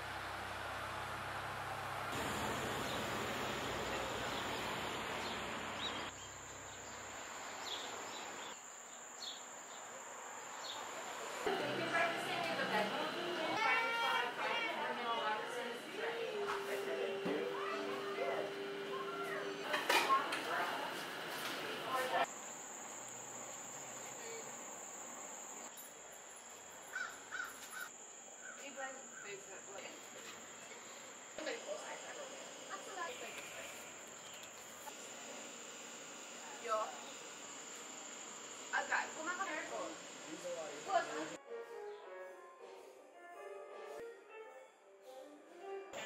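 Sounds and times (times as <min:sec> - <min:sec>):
insects trilling: 0:02.2 - 0:15.7, 0:22.2 - 0:41.4.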